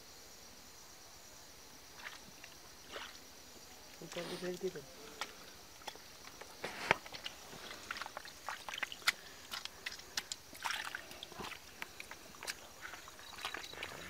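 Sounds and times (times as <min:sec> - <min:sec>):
mud squelching: 0:02.0 - 0:03.2, 0:04.0 - 0:14.0
small water splashes: 0:02.0 - 0:03.3, 0:05.1 - 0:14.0.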